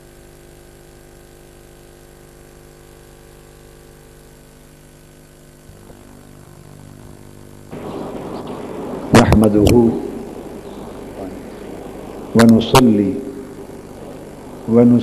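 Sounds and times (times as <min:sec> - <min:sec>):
electrical hum with hiss: 0:00.0 - 0:15.0
room noise rush: 0:04.2 - 0:15.0.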